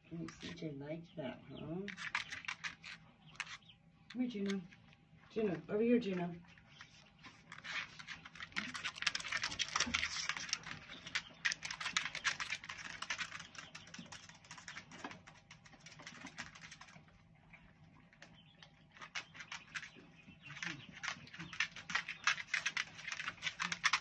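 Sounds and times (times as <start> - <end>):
dog toenails clicking on hard floor: 7.5 - 17.0, 19.0 - 24.0.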